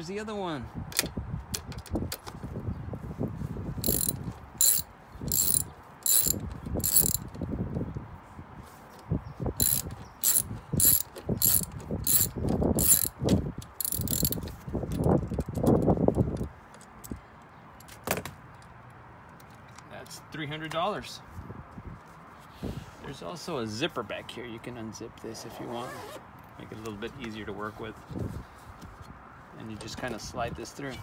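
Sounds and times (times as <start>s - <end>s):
ratchet wrench clicking: 3.8s - 7.4s, 9.6s - 15.6s.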